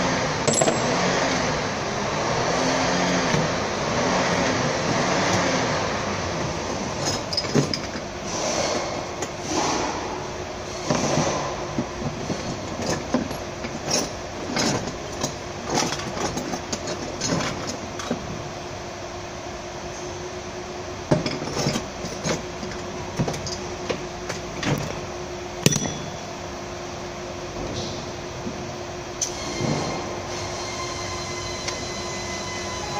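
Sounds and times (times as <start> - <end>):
workshop hum: 0.0 - 32.9
metal tools clinking on van: 0.4 - 1.0, 25.6 - 26.3.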